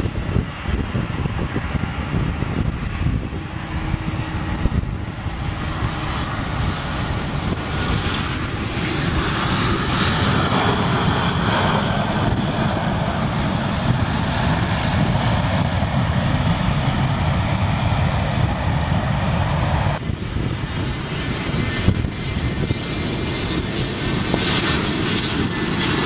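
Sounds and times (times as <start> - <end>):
jet engines roaring: 0.0 - 26.0.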